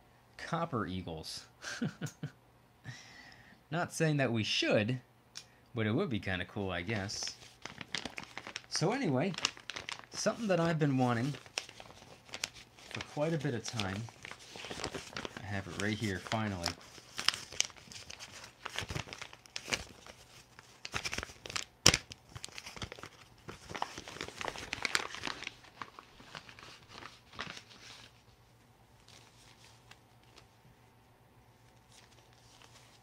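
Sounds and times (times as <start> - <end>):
packaging torn and crinkled: 7.2 - 28.2.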